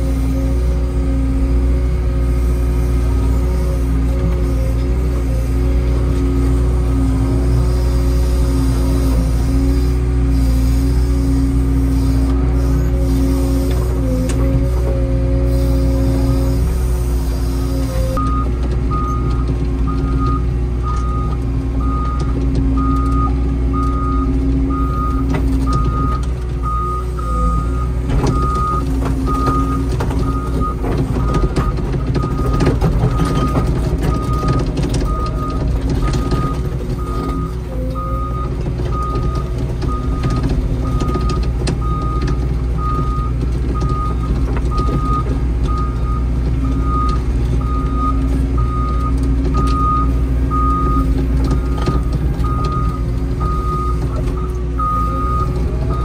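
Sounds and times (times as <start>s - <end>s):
diesel engine running: 0.0s - 56.0s
knocks and rattles: 28.0s - 37.4s
travel alarm beeping: 51.9s - 56.0s.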